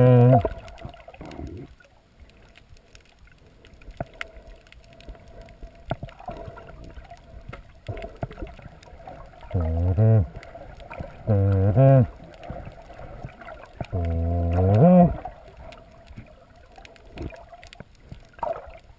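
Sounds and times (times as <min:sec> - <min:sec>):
faint steady hum: 0:00.0 - 0:18.9
underwater clicks and crackles: 0:00.0 - 0:18.9
low voice-like wavering hum: 0:09.6 - 0:10.3, 0:14.0 - 0:15.2.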